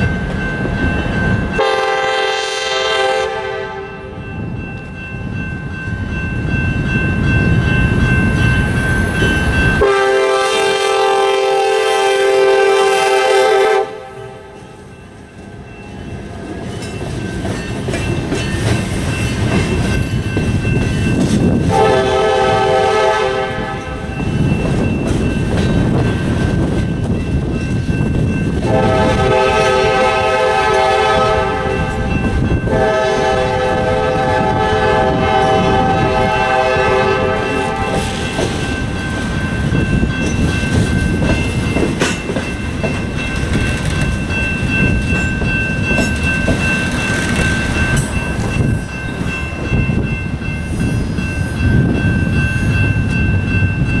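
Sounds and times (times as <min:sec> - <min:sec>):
crossing bell ringing: 0:00.0 - 0:54.0
diesel locomotive horn blasts: 0:01.6 - 0:04.2, 0:09.8 - 0:14.6, 0:21.7 - 0:24.1, 0:28.6 - 0:32.0, 0:32.6 - 0:38.2
train wheels clattering on rails: 0:14.6 - 0:54.0.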